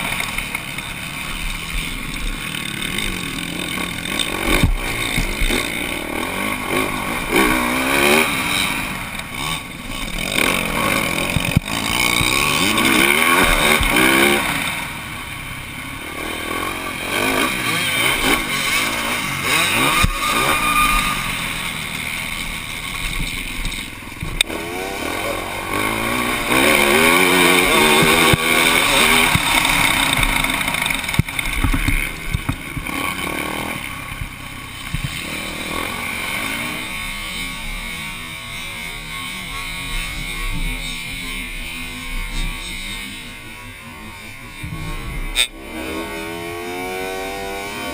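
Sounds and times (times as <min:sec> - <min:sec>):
motorbike engine revving: 0:00.0 - 0:47.9.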